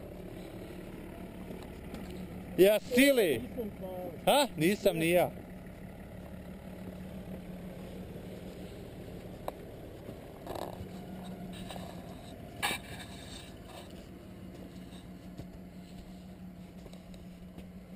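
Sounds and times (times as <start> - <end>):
car engine idling: 0.0 - 17.9
short scraping noises: 10.7 - 14.0.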